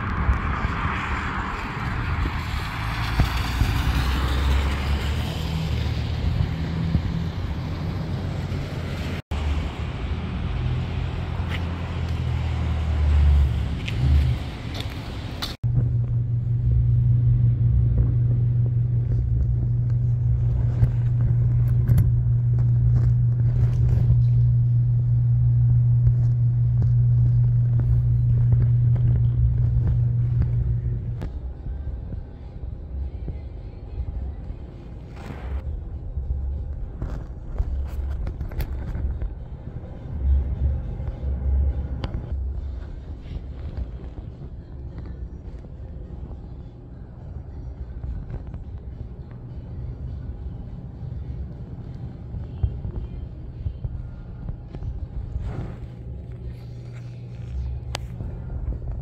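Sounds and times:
low vehicle rumble: 0:00.0 - 0:59.0
steady low hum: 0:15.6 - 0:59.0.

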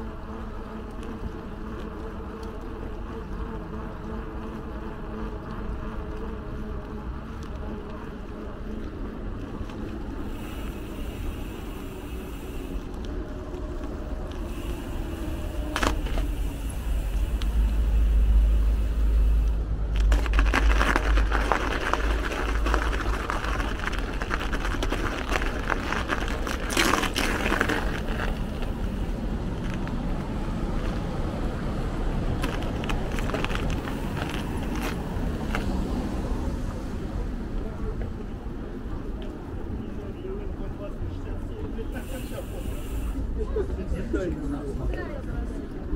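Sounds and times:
rough crackling noise: 0:00.0 - 0:43.4
street traffic: 0:00.0 - 0:45.9
deep rumble: 0:11.9 - 0:38.0.

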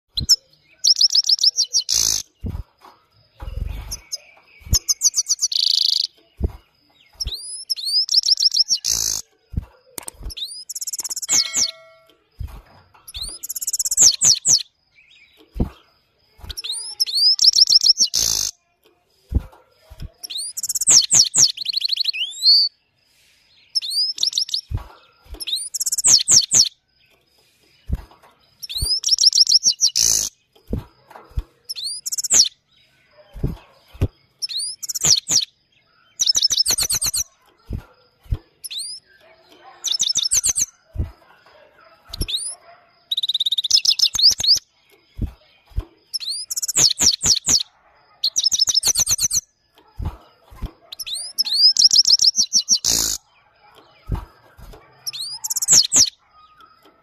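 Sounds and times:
finch twittering song: 0:00.0 - 0:57.0
sharp clicks: 0:08.6 - 0:12.2.

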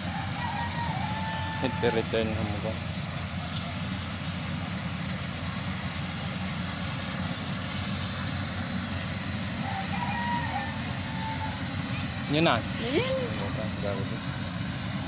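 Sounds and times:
motor humming with high whine: 0:00.9 - 0:15.0.

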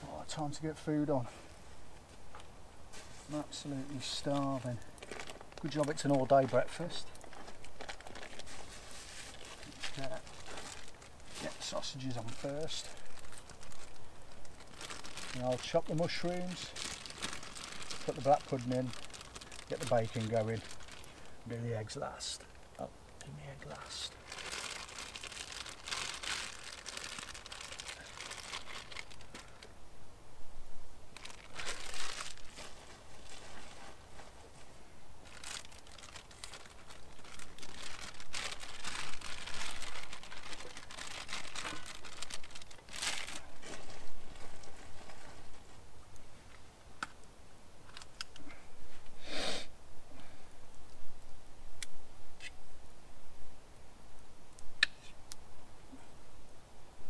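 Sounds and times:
plastic packaging crinkling: 0:03.3 - 0:21.4, 0:23.7 - 0:29.7, 0:31.1 - 0:34.4, 0:35.2 - 0:45.7.

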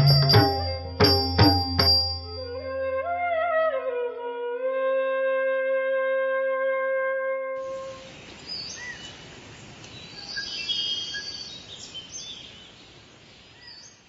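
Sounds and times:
held musical note: 0:00.0 - 0:04.1
birds chirping: 0:07.8 - 0:14.0.

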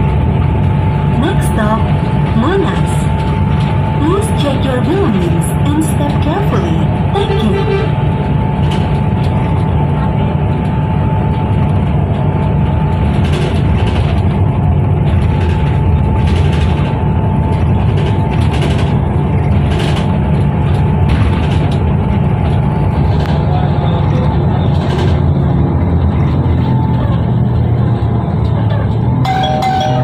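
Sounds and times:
steady whine: 0:00.0 - 0:13.2
bus engine and road rumble: 0:00.0 - 0:30.0.

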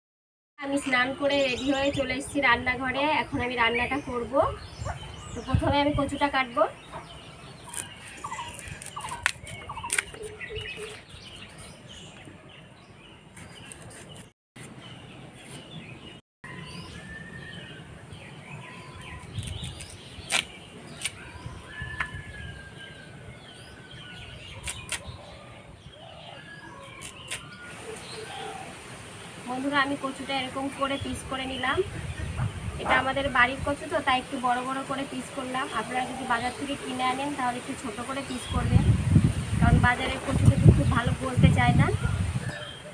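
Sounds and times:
birds chirping and calling: 0:00.8 - 0:42.9
blade cutting vegetable clicks: 0:19.2 - 0:21.2.

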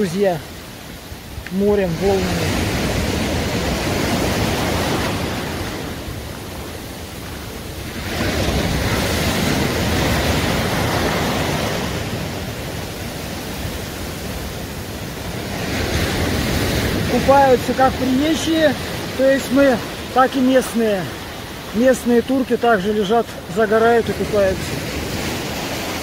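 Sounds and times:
surf breaking on pebble beach: 0:07.7 - 0:26.0.

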